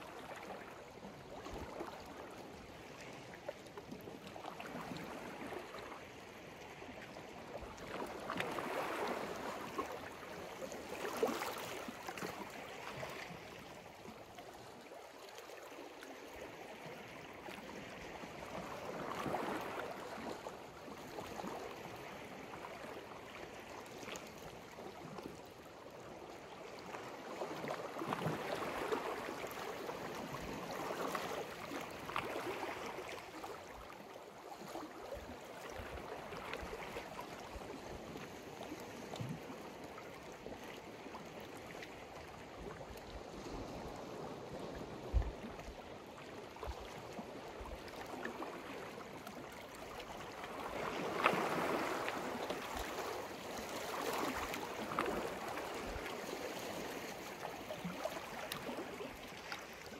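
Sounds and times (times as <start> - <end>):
sea waves washing onto shore: 50.2 - 59.9.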